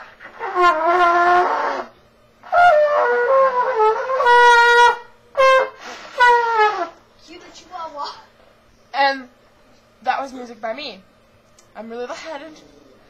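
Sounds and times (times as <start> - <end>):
wavering trumpet notes: 0.2 - 7.0.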